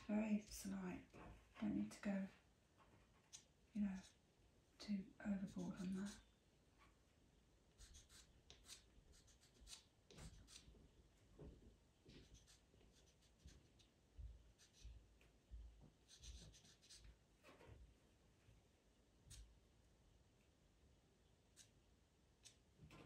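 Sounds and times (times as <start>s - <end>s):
pencil scratching on paper: 4.0s - 4.2s, 5.4s - 6.3s, 7.8s - 10.7s, 12.1s - 13.9s, 14.5s - 15.0s, 16.0s - 17.1s.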